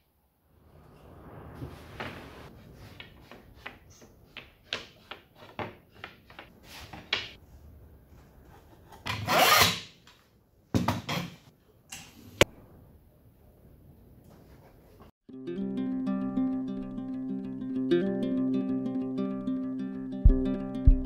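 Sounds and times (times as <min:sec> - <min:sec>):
loud wooden scrape: 0:01.0 - 0:05.6.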